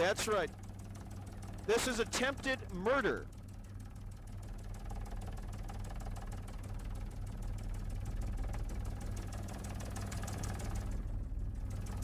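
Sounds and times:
helicopter engine and rotor: 0:00.0 - 0:12.0.

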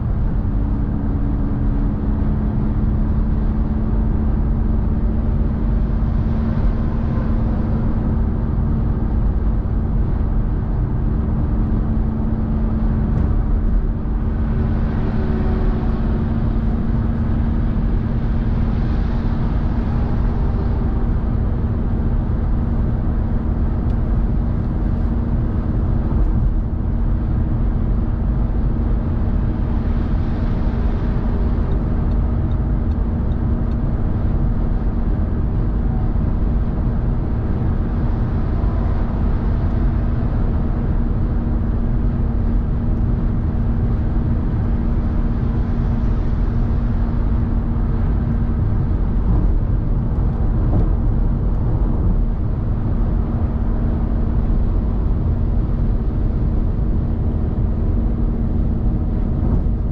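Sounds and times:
constant low hum: 0:00.0 - 0:59.9
tyre roar and road noise: 0:00.0 - 0:59.9.

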